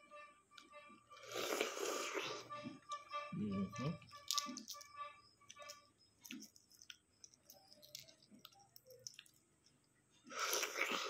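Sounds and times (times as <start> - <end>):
eggshell cracking and peeling: 4.1 - 9.9.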